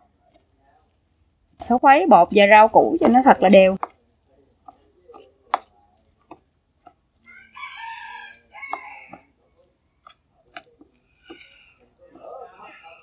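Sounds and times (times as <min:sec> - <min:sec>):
rooster crowing: 0:07.2 - 0:09.3.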